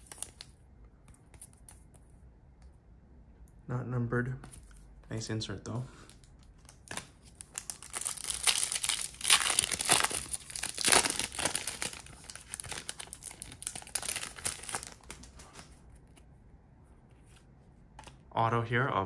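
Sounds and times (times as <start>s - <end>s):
wrapper crinkling and tearing: 6.7s - 15.7s.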